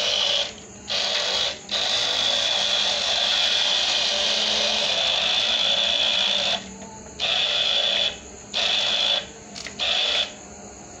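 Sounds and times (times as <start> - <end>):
toy car motor whirring: 0.0 - 10.4.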